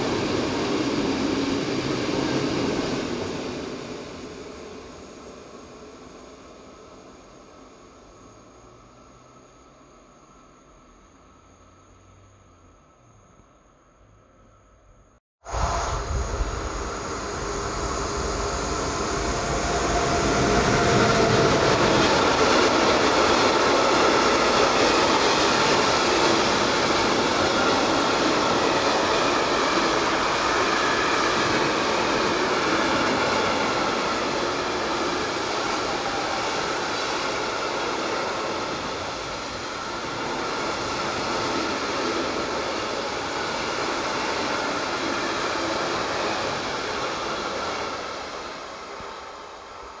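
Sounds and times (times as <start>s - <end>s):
freight train wheels rumbling: 15.5s - 50.0s.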